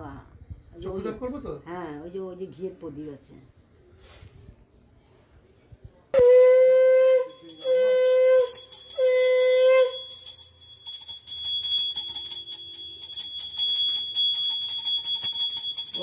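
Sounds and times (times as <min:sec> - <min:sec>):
conch shell blown: 0:06.2 - 0:10.1
hand bell ringing: 0:07.3 - 0:16.0.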